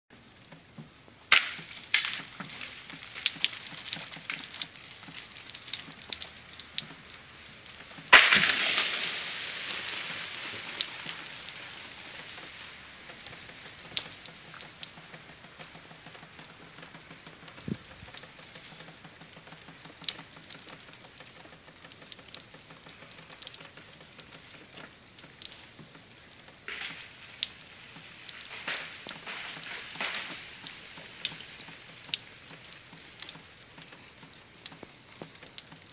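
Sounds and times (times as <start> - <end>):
ice and freezing rain pattering: 0.1 - 35.9
branch crashing down: 1.3 - 4.4, 8.1 - 11.7, 26.7 - 31.9
tree branch cracking: 1.3 - 6.8, 8.1 - 15.0, 26.3 - 33.5.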